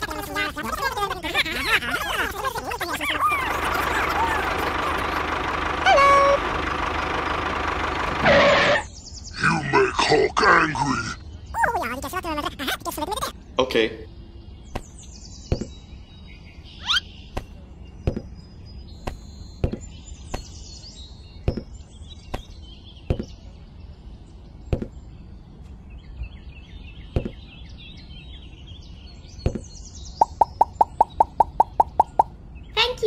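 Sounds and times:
faint bird chirps: 0:14.0 - 0:33.0.

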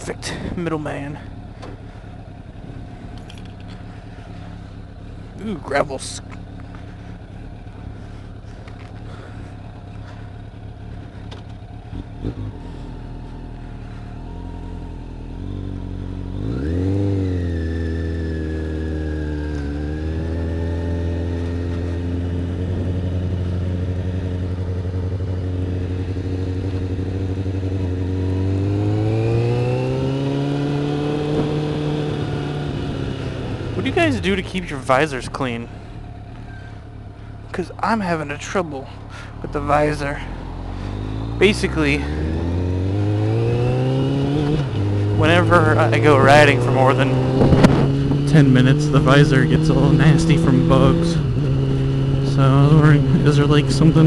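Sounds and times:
motorcycle engine running: 0:00.0 - 0:54.0
light clicks and clatter: 0:03.1 - 0:03.8.

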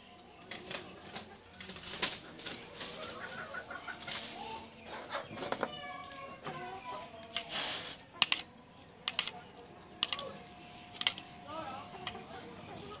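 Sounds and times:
chicken clucking: 0:00.0 - 0:13.0
sharp clicks: 0:08.2 - 0:09.4, 0:10.0 - 0:10.3, 0:10.9 - 0:11.4.

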